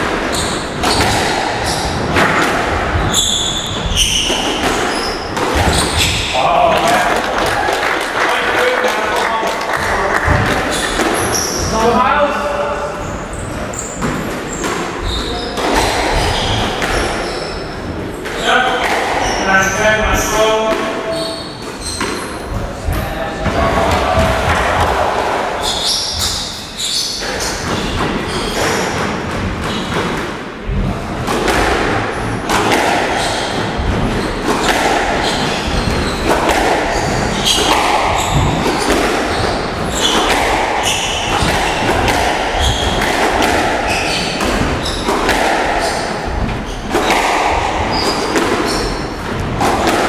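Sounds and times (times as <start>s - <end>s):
squash ball hits echoing: 0.0s - 50.0s
shoe squeaks on court floor: 0.3s - 2.0s, 3.0s - 6.4s, 10.6s - 11.8s, 13.0s - 17.8s, 19.2s - 22.4s, 25.6s - 28.9s, 33.1s - 33.6s, 35.1s - 36.3s, 36.9s - 41.9s, 42.6s - 43.1s, 43.8s - 45.1s, 47.8s - 49.2s.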